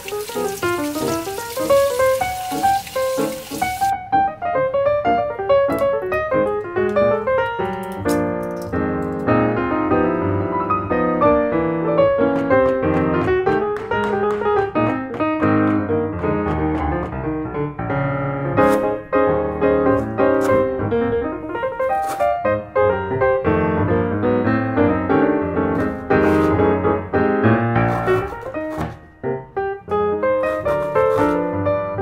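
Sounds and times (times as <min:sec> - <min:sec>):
piano music: 0:00.0 - 0:32.0.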